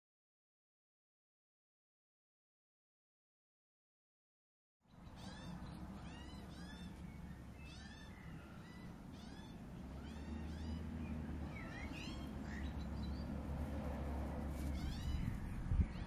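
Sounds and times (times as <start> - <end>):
magpie squawky calls: 5.1 - 7.0, 7.6 - 10.9.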